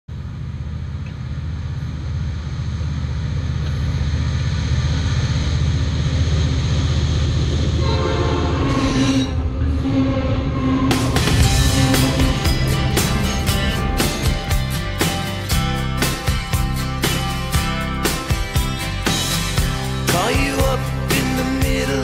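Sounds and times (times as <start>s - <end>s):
diesel locomotive rumbling: 0.1s - 22.0s
train horn: 7.7s - 14.0s.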